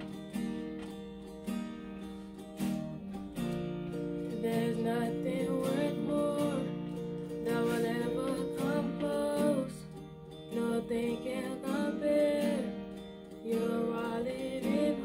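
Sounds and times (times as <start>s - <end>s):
acoustic guitar strumming: 0.0s - 15.0s
girl singing: 4.2s - 15.0s.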